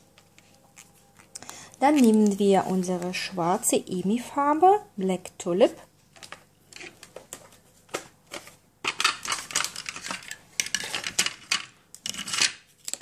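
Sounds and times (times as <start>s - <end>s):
small hard objects clattering: 8.8s - 13.0s.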